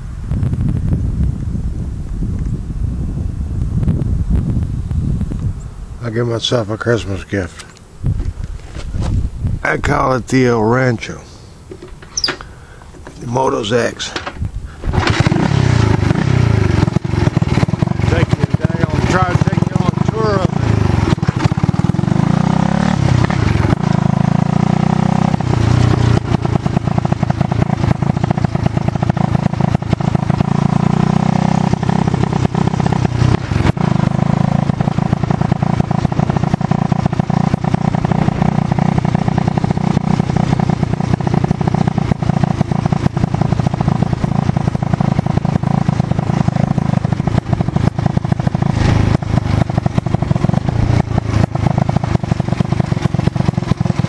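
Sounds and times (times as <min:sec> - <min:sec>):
motorcycle engine revving: 0:11.7 - 0:54.0.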